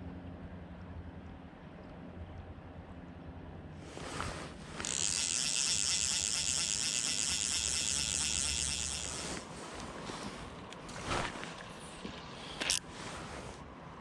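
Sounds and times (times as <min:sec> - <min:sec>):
fishing reel ratchet buzzing: 0:04.6 - 0:09.4, 0:12.6 - 0:12.8.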